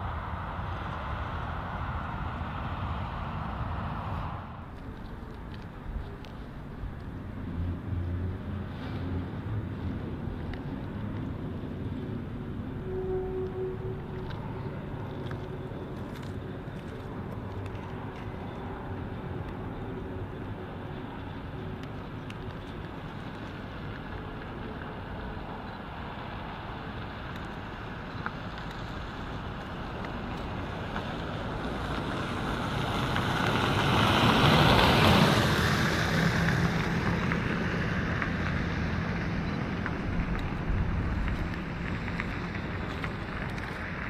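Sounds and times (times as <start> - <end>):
motor vehicle engine passing: 28.8 - 44.0.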